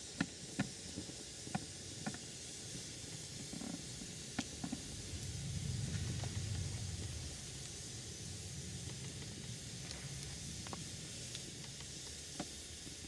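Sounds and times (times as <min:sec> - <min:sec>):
wood fire crackling and popping: 0:00.0 - 0:13.0
low rumble: 0:04.4 - 0:12.0.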